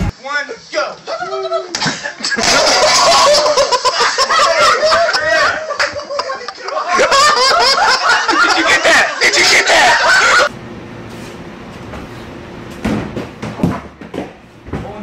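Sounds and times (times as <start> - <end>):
people laughing and shrieking: 1.7 - 10.5.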